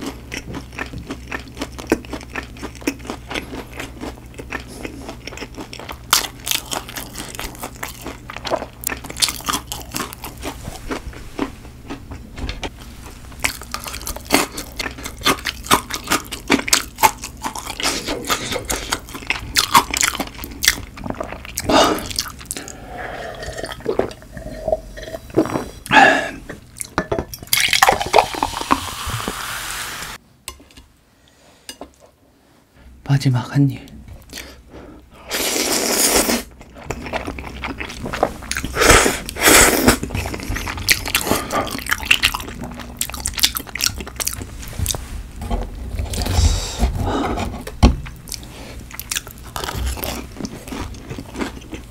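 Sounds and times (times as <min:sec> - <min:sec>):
chewing with mouth clicks: 0:00.0 - 0:12.0, 0:13.4 - 0:24.5, 0:36.2 - 0:45.0, 0:48.2 - 0:51.9.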